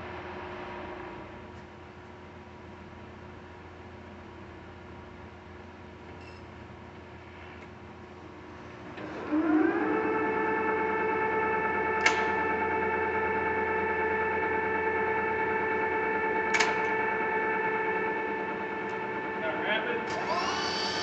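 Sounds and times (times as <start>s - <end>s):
lathe motor whining: 8.8s - 21.0s.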